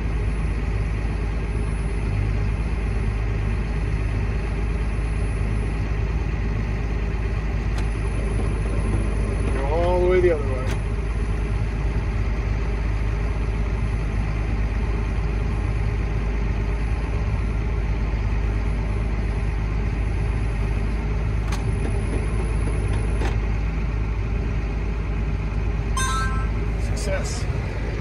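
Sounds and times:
tractor diesel engine droning: 21.7s - 28.0s.

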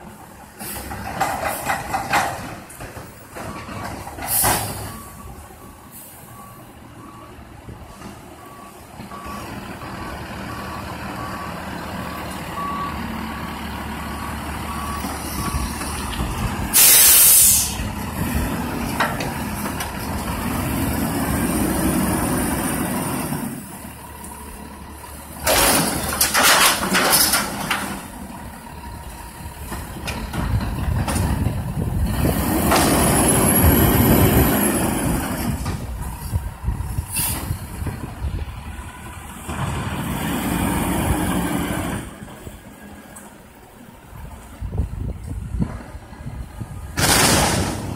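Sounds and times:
reversing alarm beeping: 3.4s - 17.9s
truck engine revving: 9.2s - 42.9s
air hissing: 16.7s - 17.9s
loud bangs: 46.9s - 47.9s.

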